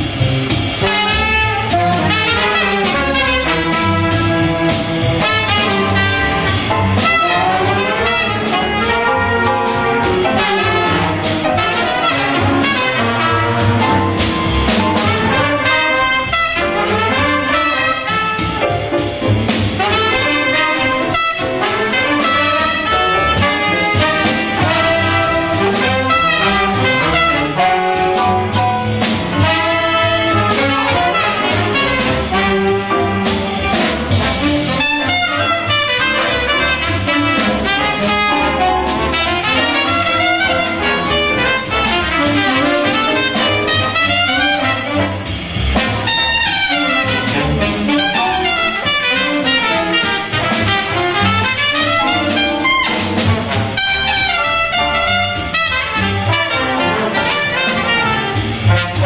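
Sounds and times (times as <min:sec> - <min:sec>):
jazz big band playing: 0:00.0 - 0:59.0
trumpets and trombones: 0:00.0 - 0:59.0.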